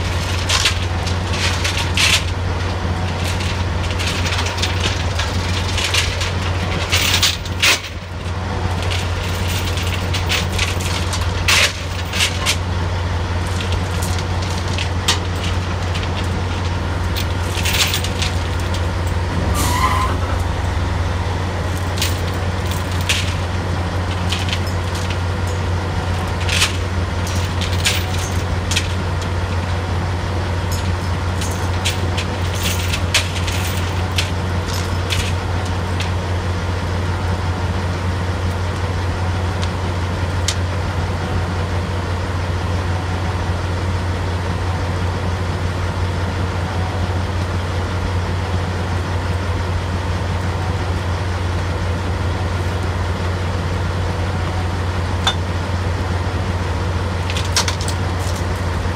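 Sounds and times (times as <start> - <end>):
drilling rig machinery drone: 0.0 - 58.9
metallic clanks of chain and tools: 0.1 - 2.4, 3.1 - 8.1, 8.8 - 12.6, 13.4 - 20.7, 21.7 - 29.0, 30.7 - 36.2, 55.2 - 55.5.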